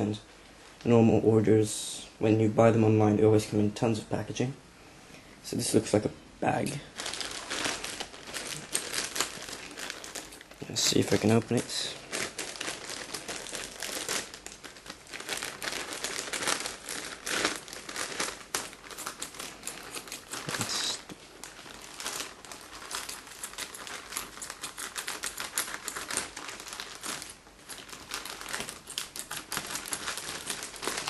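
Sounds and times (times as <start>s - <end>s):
plastic bag crinkling: 6.6s - 31.0s.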